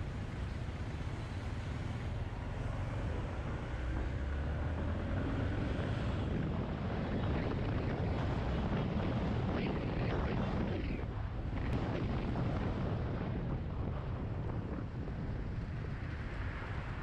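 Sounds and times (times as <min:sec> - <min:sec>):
wind and road noise: 0:00.0 - 0:17.0.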